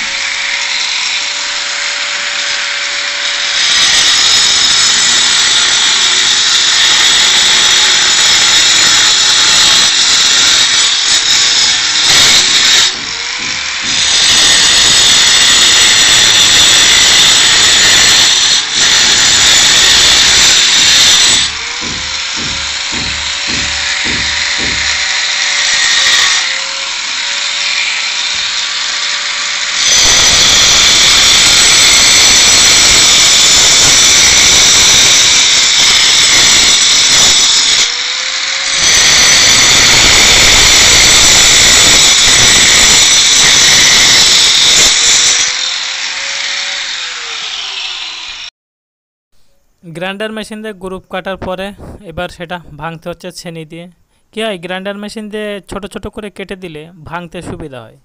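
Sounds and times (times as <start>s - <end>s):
angle grinder cutting concrete: 0.0s - 48.5s
quick knocks: 20.8s - 25.2s
grinder motor whining freely: 43.0s - 48.5s.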